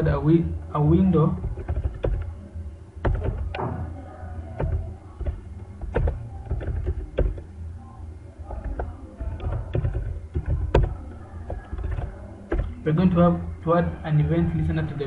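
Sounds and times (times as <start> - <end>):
steady low hum: 0.0 - 15.0
keyboard keystrokes: 1.4 - 2.3, 3.0 - 3.6, 4.6 - 7.5, 8.6 - 12.8.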